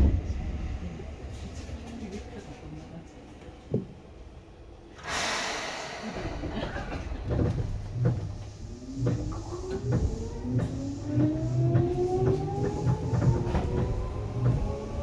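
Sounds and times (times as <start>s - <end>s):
air hiss burst: 5.0s - 7.1s
train motor whine rising: 7.4s - 15.0s.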